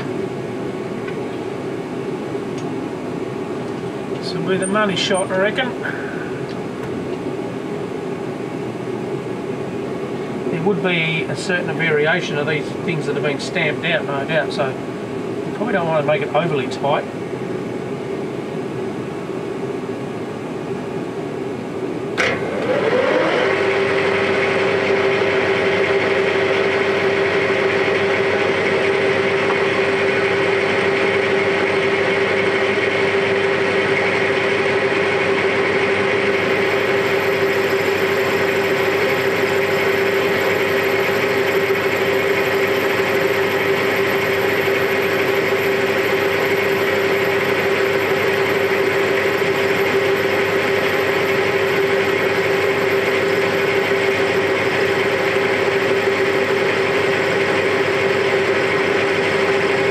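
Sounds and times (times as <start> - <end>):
lathe motor whining and running: 22.2 - 59.9.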